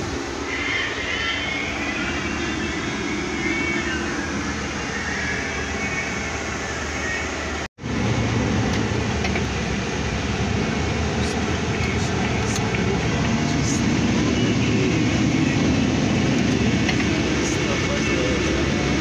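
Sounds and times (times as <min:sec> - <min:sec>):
truck engine and road noise: 0:00.0 - 0:19.0.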